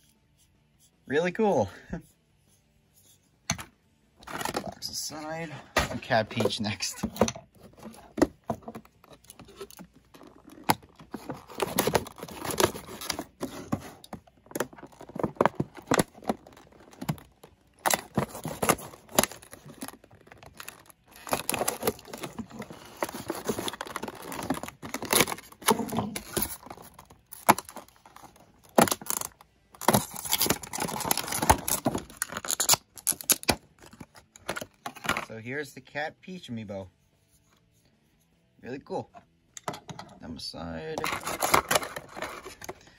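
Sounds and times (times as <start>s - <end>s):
plastic packaging crinkling and tearing: 9.4s - 34.7s.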